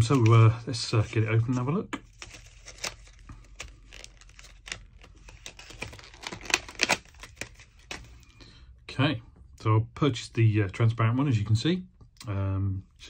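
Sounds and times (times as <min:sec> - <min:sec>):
plastic packaging tearing: 0:01.3 - 0:08.2.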